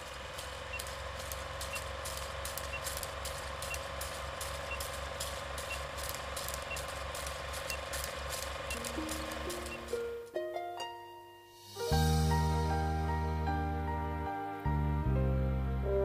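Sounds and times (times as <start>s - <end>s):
film crackling pops: 0.0s - 10.0s
film projector running: 0.0s - 10.0s.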